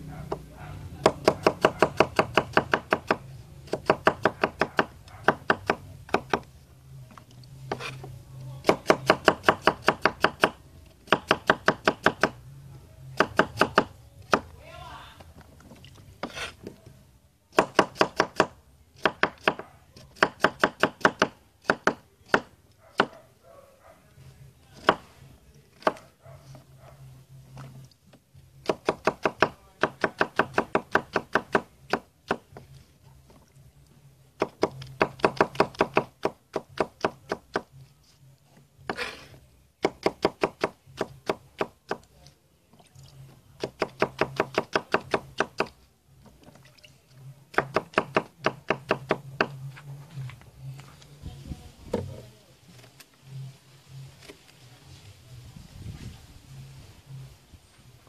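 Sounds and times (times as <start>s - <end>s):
knife chopping on wooden board: 0.3s - 6.5s, 17.5s - 23.2s.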